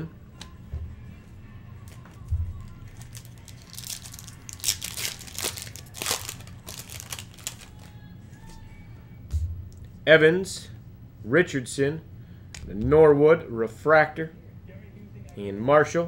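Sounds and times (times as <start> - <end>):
foil wrapper tearing and crinkling: 2.9 - 7.9.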